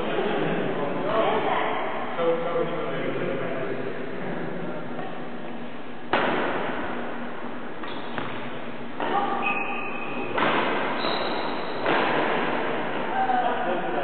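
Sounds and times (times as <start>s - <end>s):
racket hitting shuttlecock: 6.1s - 7.1s, 7.8s - 9.5s, 10.2s - 13.2s.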